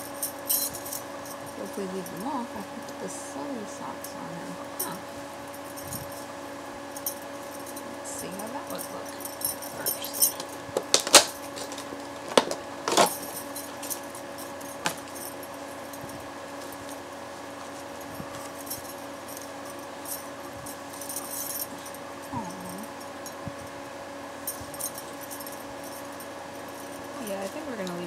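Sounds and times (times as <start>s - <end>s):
bracelets jangling: 0.0s - 3.0s, 7.0s - 17.0s, 17.6s - 23.4s, 24.5s - 28.0s
low hum: 0.0s - 28.0s.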